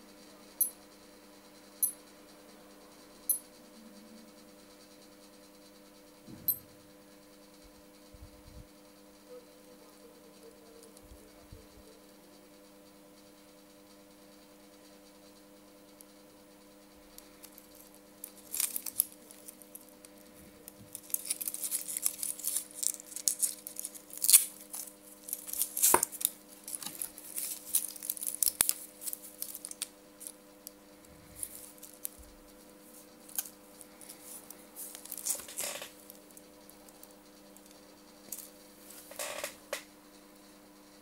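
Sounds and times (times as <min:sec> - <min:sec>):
plastic packaging crinkling: 0:17.4 - 0:19.9, 0:20.6 - 0:30.4, 0:31.4 - 0:32.2, 0:32.9 - 0:36.2.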